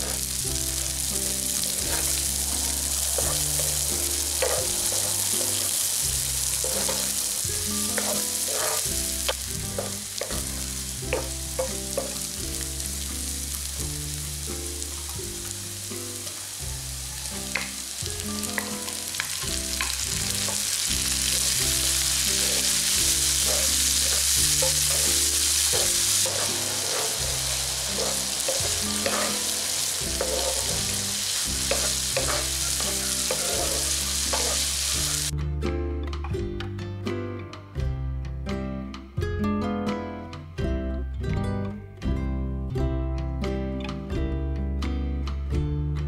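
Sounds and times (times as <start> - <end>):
vegetables sizzling in hot oil: 0.0 - 35.3
wooden spatula scraping a pan: 1.5 - 12.2, 19.2 - 35.3.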